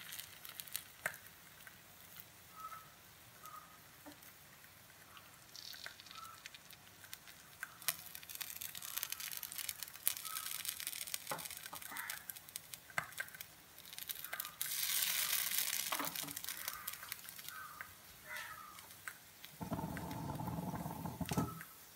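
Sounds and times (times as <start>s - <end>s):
batter sizzling in frying pan: 0.0s - 21.9s.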